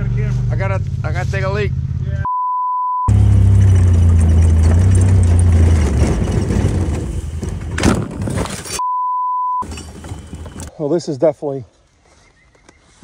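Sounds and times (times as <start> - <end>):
steady beep tone: 2.2 - 3.1, 8.8 - 9.6
utility vehicle engine running: 3.1 - 8.6, 9.6 - 10.7
loud crunch: 3.1 - 8.8.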